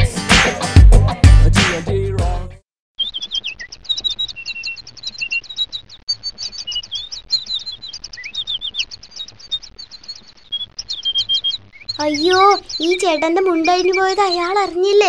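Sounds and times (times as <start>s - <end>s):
small birds chirping: 3.0s - 15.0s.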